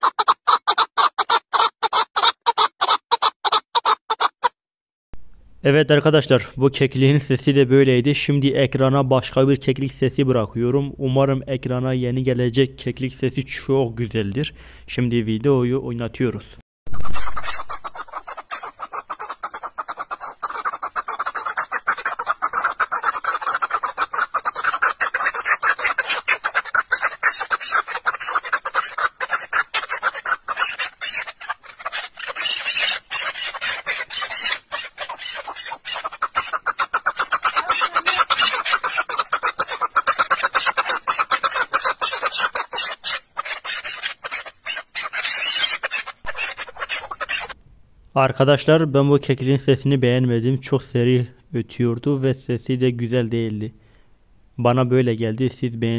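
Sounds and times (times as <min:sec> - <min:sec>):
partridge calling rapidly: 0:00.0 - 0:04.6, 0:16.9 - 0:47.6.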